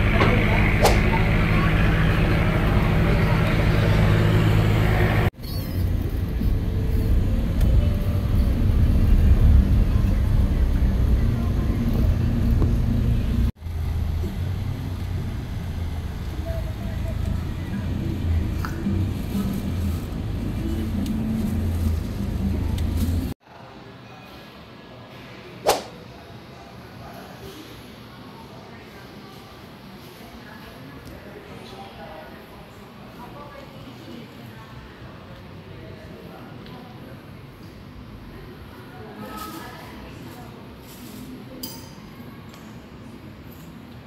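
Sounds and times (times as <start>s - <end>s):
low engine rumble: 0.0s - 23.4s.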